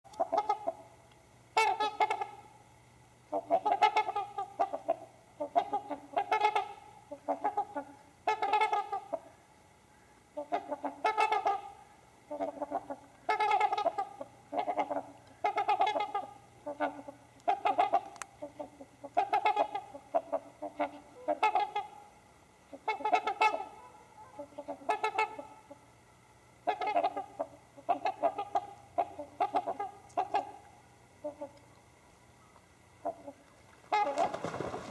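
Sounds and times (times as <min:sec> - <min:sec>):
swans honking: 0:00.1 - 0:00.9, 0:01.5 - 0:02.5, 0:03.2 - 0:25.9, 0:26.6 - 0:31.6, 0:32.4 - 0:34.9.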